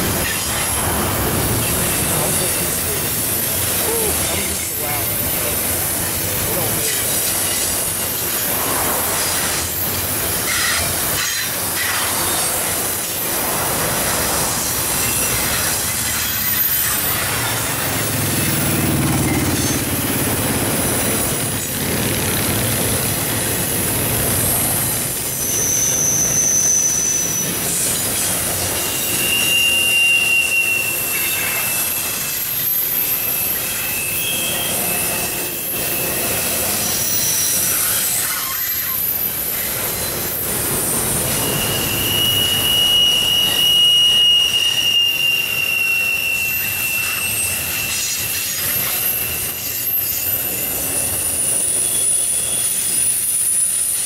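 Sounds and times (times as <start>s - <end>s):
train wheels rolling on rails: 0.0s - 54.0s
high-pitched wheel squeal: 14.7s - 20.0s, 25.2s - 54.0s.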